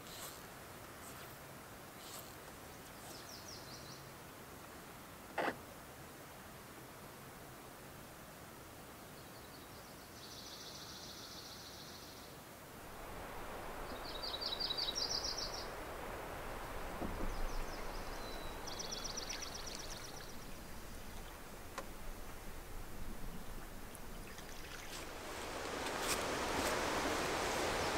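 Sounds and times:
canoe moving through water: 0:12.8 - 0:27.9
songbird trilling: 0:13.2 - 0:26.2.

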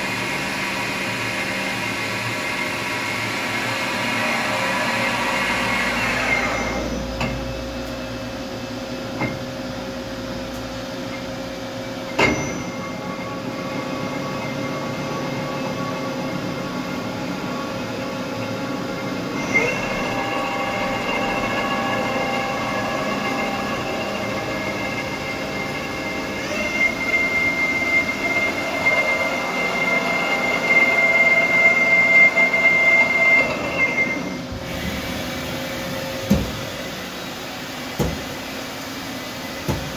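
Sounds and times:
machine whine: 0:00.0 - 0:39.9
high-pitched whine: 0:12.1 - 0:34.6.

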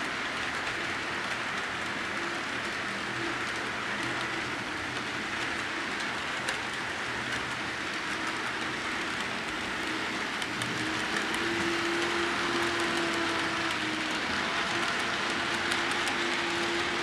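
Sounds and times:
model train wheels hissing on rail: 0:00.0 - 0:17.0
thin motor whine: 0:09.5 - 0:17.0.

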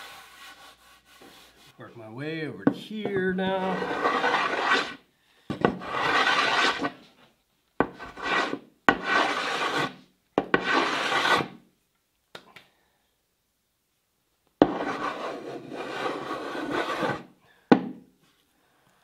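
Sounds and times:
hand plane rasping on wood: 0:03.5 - 0:05.0, 0:05.7 - 0:07.0, 0:07.9 - 0:09.9, 0:10.5 - 0:11.5, 0:14.6 - 0:17.2.

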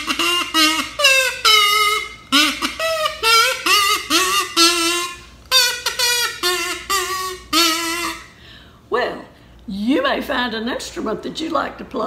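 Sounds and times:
kazoo playing a tune: 0:00.0 - 0:08.6.

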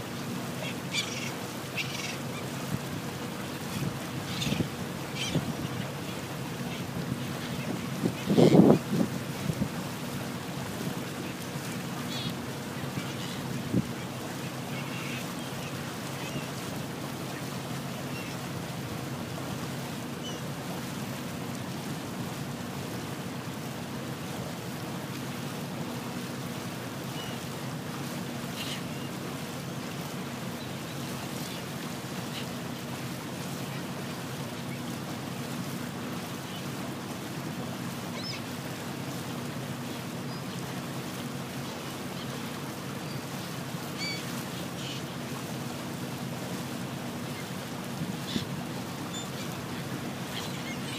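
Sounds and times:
motorboat engine humming: 0:00.0 - 0:50.9
water and wind rushing: 0:00.0 - 0:50.9
faint gull call: 0:00.5 - 0:02.7, 0:03.7 - 0:08.9, 0:12.0 - 0:16.7, 0:43.9 - 0:45.2.

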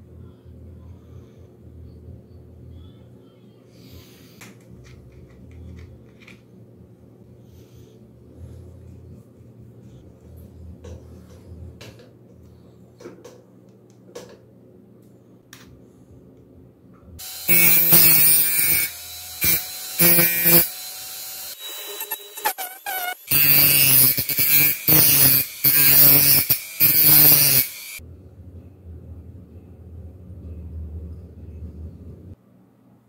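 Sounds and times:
low hum: 0:00.0 - 0:17.9, 0:28.0 - 0:33.0
rotary tool grinding steel: 0:17.2 - 0:28.0.

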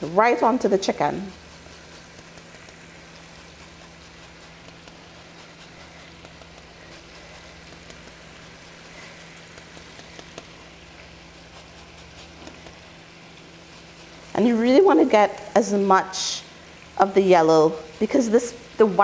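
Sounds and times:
chicken frying in oil: 0:00.0 - 0:19.0.

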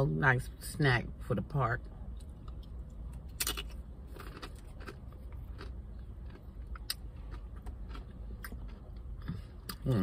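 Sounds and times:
steady low hum: 0:00.0 - 0:10.0
crunchy chip chewing: 0:02.4 - 0:09.0.

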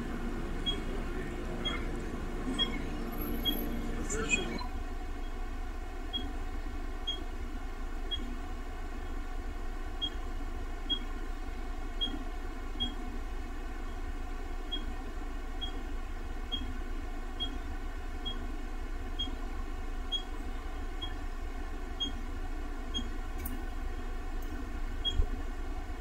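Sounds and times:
low hum and hiss: 0:00.0 - 0:26.0.

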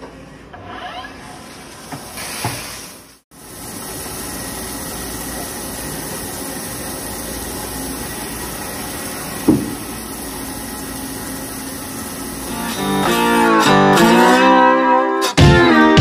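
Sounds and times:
milling machine cutting metal: 0:10.5 - 0:14.2.

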